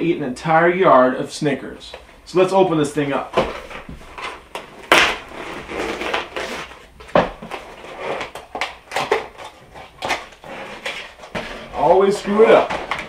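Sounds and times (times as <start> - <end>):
cardboard box scraping and tearing: 5.1 - 6.9.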